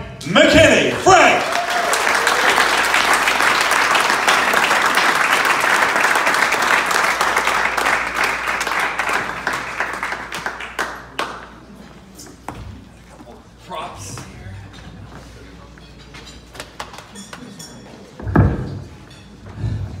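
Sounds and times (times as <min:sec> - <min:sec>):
audience applauding: 0:00.9 - 0:11.5.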